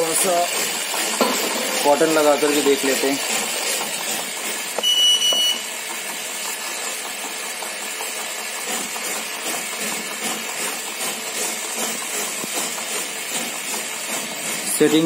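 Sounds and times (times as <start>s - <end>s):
short electronic beep: 4.8s - 5.7s.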